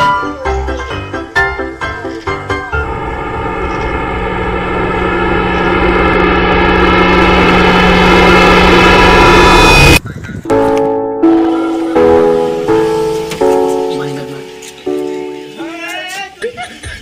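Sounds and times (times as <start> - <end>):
engine-like drone: 2.7 - 10.0
marimba-like music: 10.5 - 15.6.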